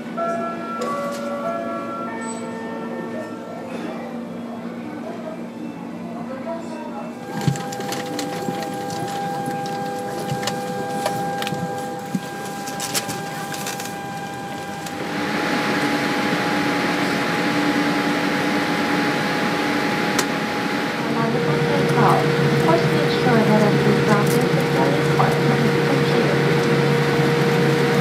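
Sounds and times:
air-conditioning hum: 0:01.0 - 0:28.0
steady tones: 0:07.2 - 0:28.0.

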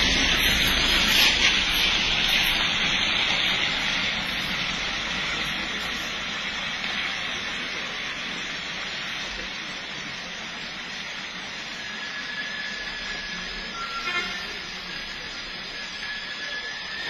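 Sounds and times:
rain hiss: 0:00.0 - 0:17.0
tyres on wet road: 0:00.0 - 0:17.0.

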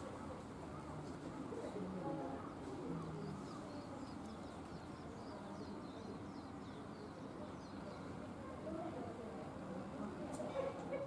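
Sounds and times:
low background murmur: 0:00.0 - 0:11.0
small birds chirping: 0:00.8 - 0:08.4.

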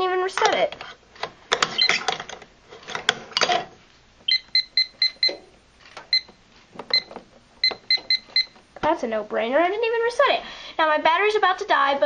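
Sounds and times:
keypad beeps: 0:01.7 - 0:02.0, 0:04.3 - 0:05.4, 0:06.1 - 0:08.6.

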